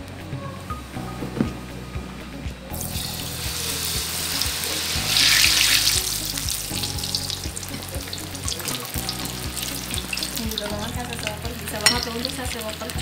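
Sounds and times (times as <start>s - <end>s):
fish sizzling in hot oil: 2.8s - 13.0s.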